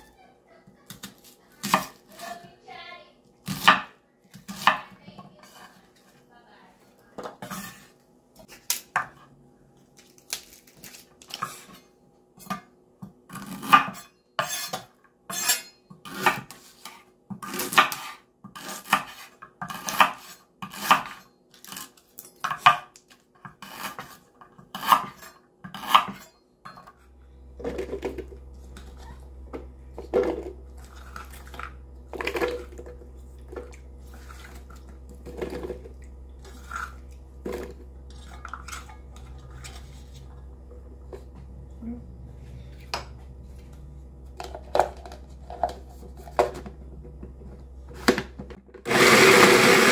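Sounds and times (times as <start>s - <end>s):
food processor humming: 27.0s - 49.9s.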